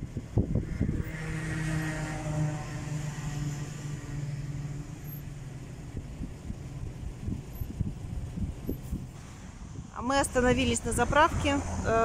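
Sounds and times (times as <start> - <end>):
car road and engine noise: 0.0 - 12.0.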